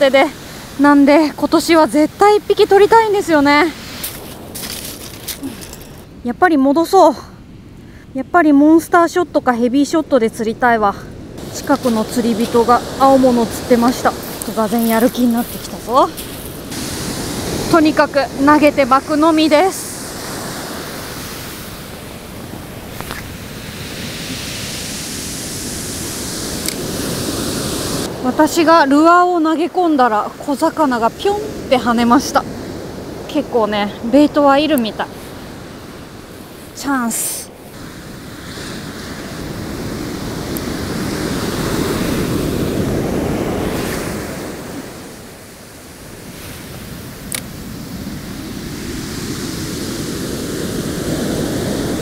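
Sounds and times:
surf breaking on beach: 11.4s - 52.0s.

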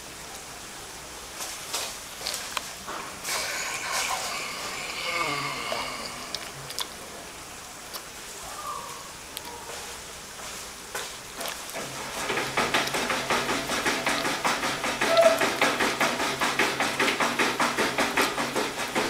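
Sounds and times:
rapid sharp taps: 11.5s - 19.0s.

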